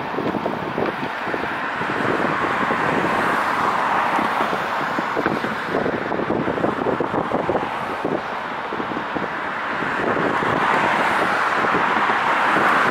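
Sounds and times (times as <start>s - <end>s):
street traffic rumble: 0.0s - 12.9s
wind buffeting microphone: 0.0s - 12.9s.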